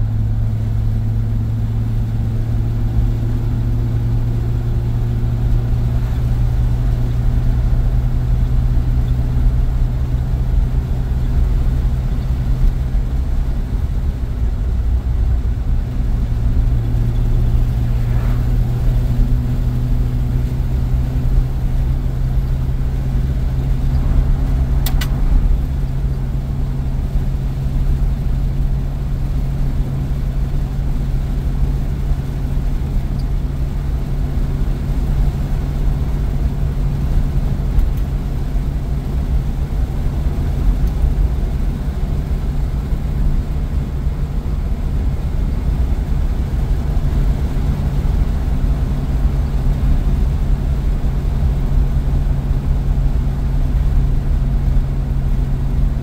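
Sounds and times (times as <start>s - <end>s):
car engine running: 0.0s - 56.0s
low road rumble: 0.0s - 56.0s
brief click: 24.8s - 25.4s.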